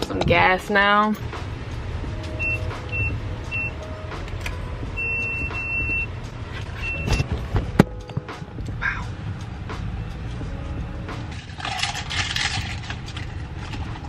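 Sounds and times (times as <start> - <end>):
low steady rumble: 0.0 - 14.0
keypad beeps: 5.0 - 6.1, 6.8 - 7.3.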